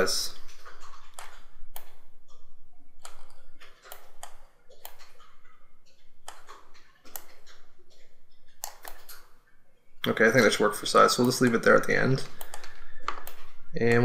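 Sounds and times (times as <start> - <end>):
computer mouse clicks: 0.6 - 2.4, 3.0 - 9.3, 11.2 - 14.0.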